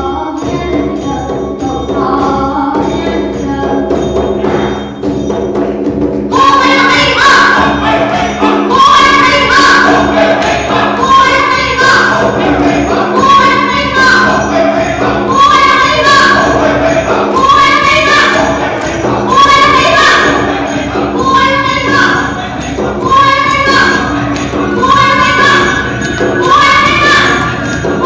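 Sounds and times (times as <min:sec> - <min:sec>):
bright struck percussion: 0:00.0 - 0:28.0
group singing in unison: 0:06.3 - 0:28.0
steady drone: 0:06.3 - 0:28.0.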